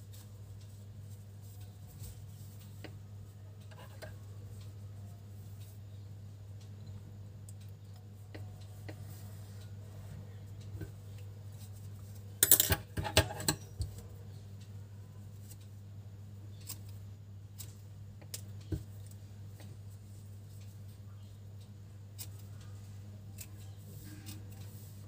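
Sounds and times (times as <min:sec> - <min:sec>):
steady low hum: 0:00.0 - 0:25.0
tools clicking on a table: 0:12.4 - 0:13.9.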